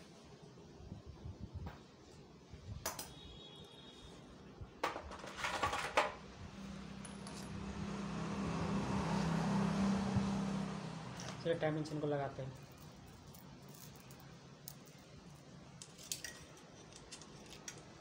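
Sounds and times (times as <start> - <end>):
metal engine parts clinking: 7.0 - 7.6, 12.6 - 18.0.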